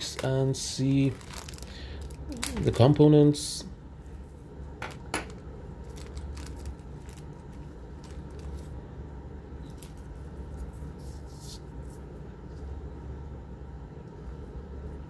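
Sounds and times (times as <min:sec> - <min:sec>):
steady low hum: 0:00.0 - 0:15.0
plastic bag crinkling: 0:00.1 - 0:03.0, 0:05.3 - 0:08.8.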